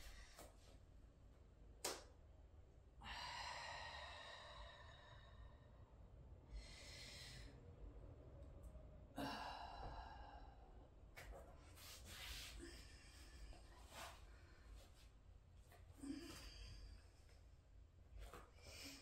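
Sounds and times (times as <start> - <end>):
woman breathing deeply: 3.0 - 7.8, 9.1 - 11.0.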